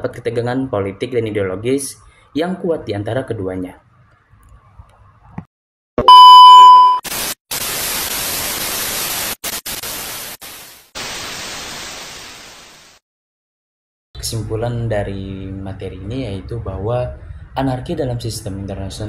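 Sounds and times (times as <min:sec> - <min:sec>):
test pattern beep: 0:06.0 - 0:07.0
tv static hiss: 0:07.0 - 0:13.0.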